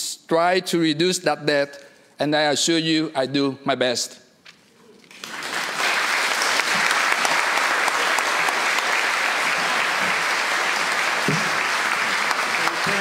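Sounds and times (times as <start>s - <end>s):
crowd applauding: 5.1s - 13.0s.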